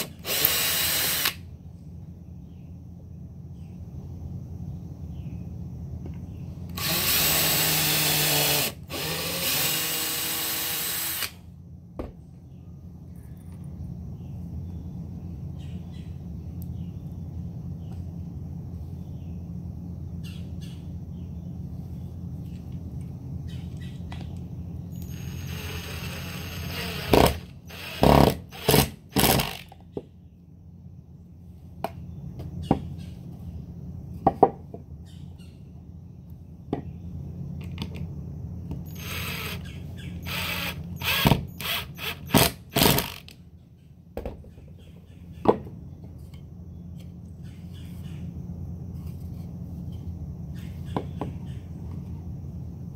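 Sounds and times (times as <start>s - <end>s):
cordless drill driving screws: 0.0s - 1.4s, 6.7s - 11.4s, 25.0s - 29.6s, 38.9s - 39.6s, 40.2s - 43.3s
steady low hum: 0.0s - 52.9s.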